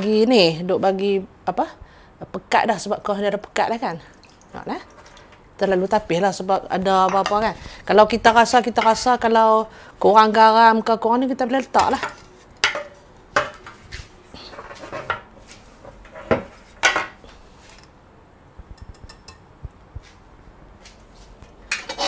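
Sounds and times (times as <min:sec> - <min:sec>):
spoon scraping a wire sieve: 0:21.8 - 0:22.0.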